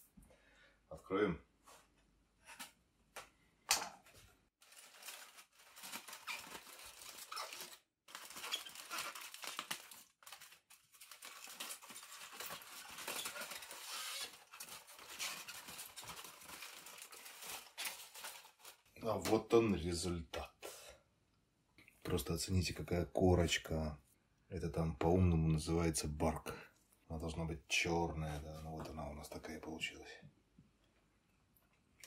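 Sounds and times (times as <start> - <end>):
aluminium foil crinkling: 4.6 - 19.0.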